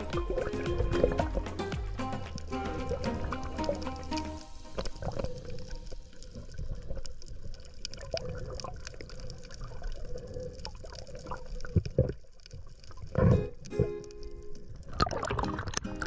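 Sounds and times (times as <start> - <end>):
underwater crackles and clicks: 0.0 - 16.0
underwater rumble of moving water: 2.2 - 13.6.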